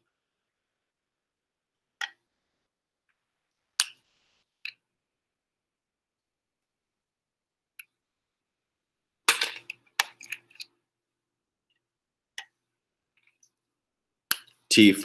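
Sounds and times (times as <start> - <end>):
plastic tubes clicking and snapping: 3.8 - 4.0, 9.3 - 10.8, 14.3 - 14.7.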